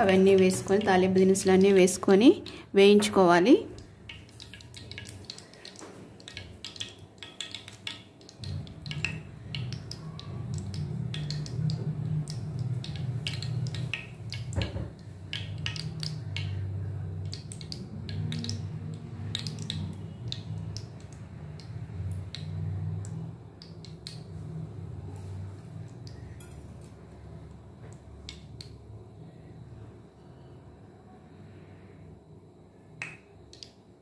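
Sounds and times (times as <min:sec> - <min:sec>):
oil crackling in a frying pan: 0:00.0 - 0:24.4
steady low hum: 0:00.0 - 0:34.0.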